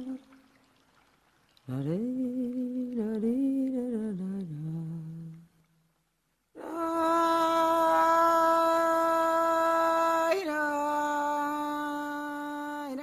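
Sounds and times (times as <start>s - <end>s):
person humming: 6.6s - 13.0s.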